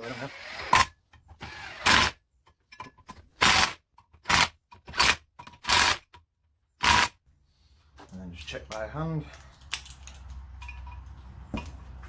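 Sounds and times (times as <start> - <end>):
cordless drill bursts: 0.0 - 2.2, 3.4 - 6.0, 6.8 - 7.2.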